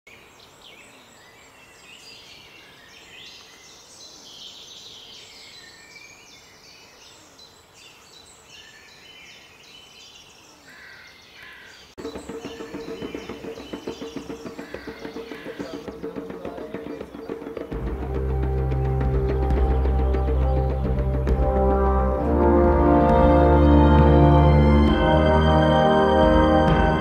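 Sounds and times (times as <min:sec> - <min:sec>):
birds chirping chorus: 0:00.1 - 0:22.2
music: 0:12.0 - 0:27.0.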